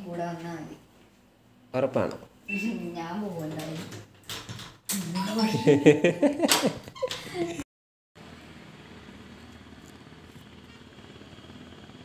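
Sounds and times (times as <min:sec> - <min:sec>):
person talking: 0:05.0 - 0:06.2.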